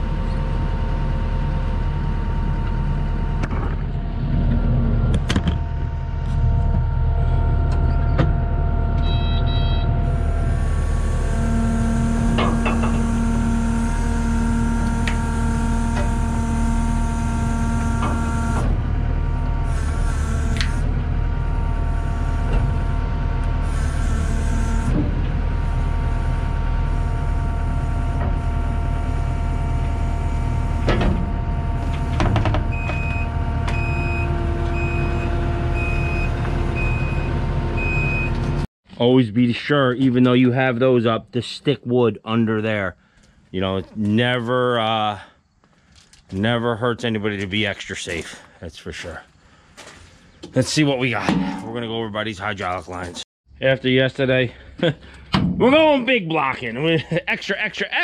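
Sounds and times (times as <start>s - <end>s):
diesel engine running under load: 0.0s - 38.7s
backup alarm beeping: 6.8s - 10.9s, 31.8s - 38.4s.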